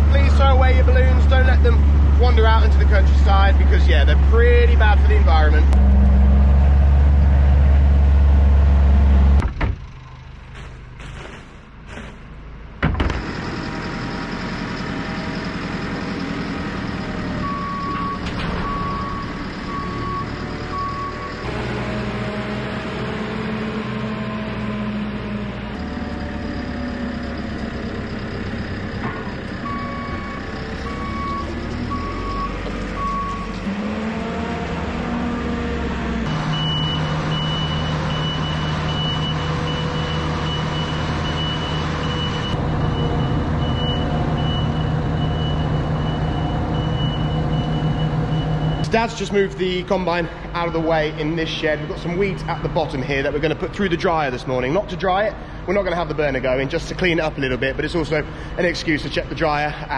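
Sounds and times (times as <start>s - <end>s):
diesel farm machinery engines: 0.0s - 59.9s
reversing alarms beeping: 13.2s - 22.5s, 24.0s - 34.0s, 36.2s - 49.6s.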